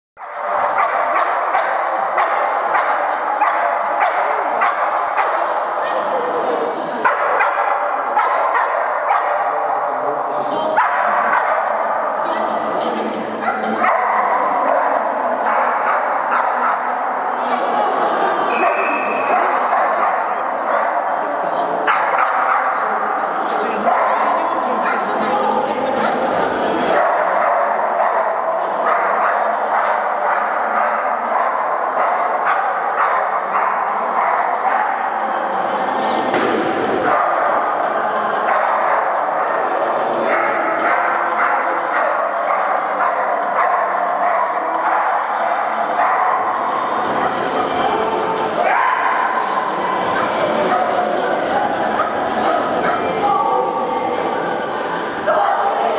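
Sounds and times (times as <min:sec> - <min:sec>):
dog barking: 0:00.2 - 0:06.1, 0:07.0 - 0:09.8, 0:10.7 - 0:12.2, 0:13.4 - 0:17.1, 0:18.6 - 0:21.2, 0:21.8 - 0:23.1, 0:26.9 - 0:35.2, 0:37.1 - 0:37.8, 0:40.2 - 0:47.6
steady background noise: 0:00.2 - 0:55.9.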